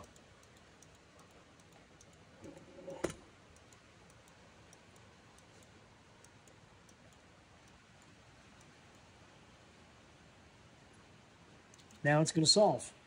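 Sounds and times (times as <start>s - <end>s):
light ticking: 0.0s - 2.5s, 3.2s - 9.3s, 10.8s - 12.2s.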